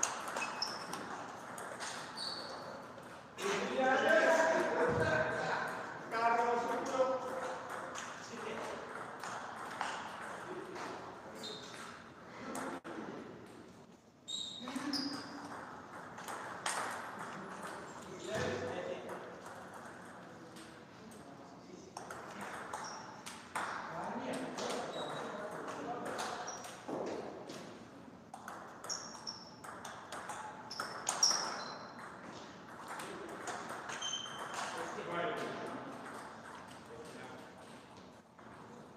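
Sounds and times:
table tennis ball hits: 0.0 - 3.2, 14.8 - 20.7, 22.0 - 27.7, 28.3 - 36.8
short high squeaks: 0.2 - 1.2, 1.9 - 2.8, 11.4 - 11.8, 14.3 - 15.4, 30.7 - 32.0, 33.9 - 34.7.

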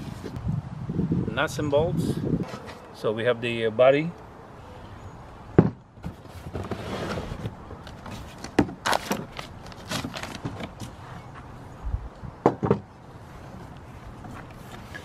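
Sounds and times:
cardboard box rustling: 6.0 - 11.0.

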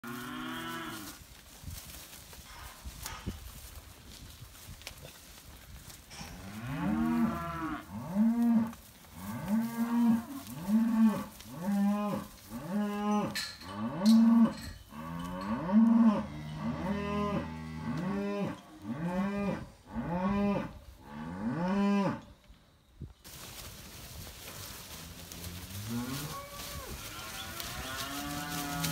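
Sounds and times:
cows mooing: 6.4 - 22.2, 25.1 - 28.9.

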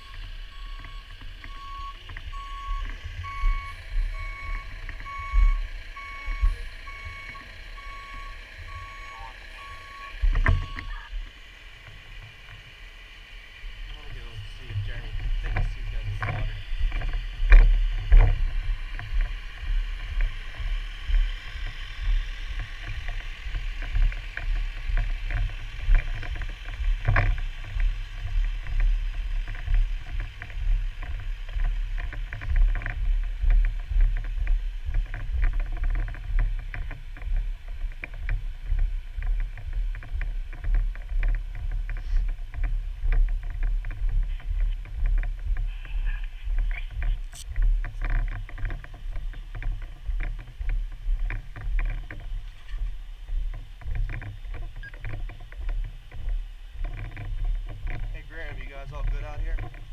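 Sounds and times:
wind rumble on microphone: 13.5 - 59.9.

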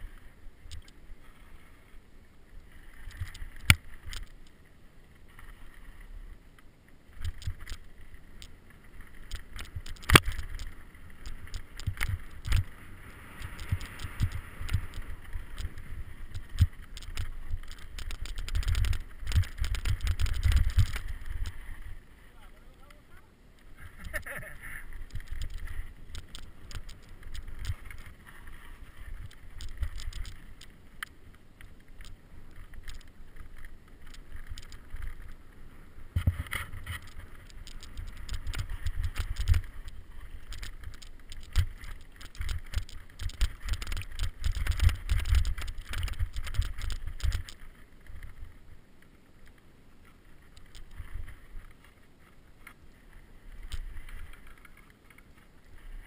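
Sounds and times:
bike rattling over bumps: 8.5 - 22.0, 23.9 - 30.8, 36.1 - 48.5.

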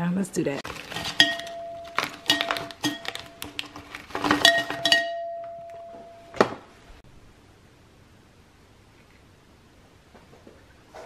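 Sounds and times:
glassware clinking: 0.8 - 6.4.

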